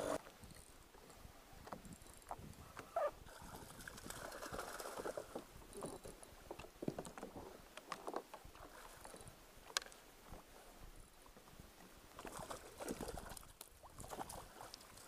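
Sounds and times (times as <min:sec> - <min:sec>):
seabird splashing and flapping: 0:03.3 - 0:05.5, 0:12.2 - 0:15.0.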